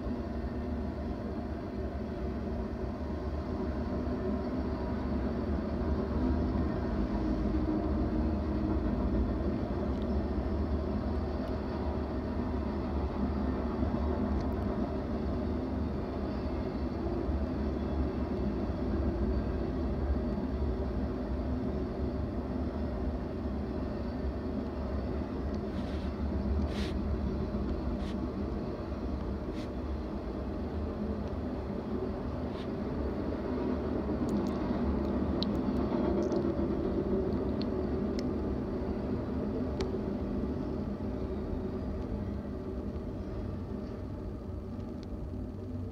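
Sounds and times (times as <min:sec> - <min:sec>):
train wheels rumbling on rails: 0:00.0 - 0:45.9.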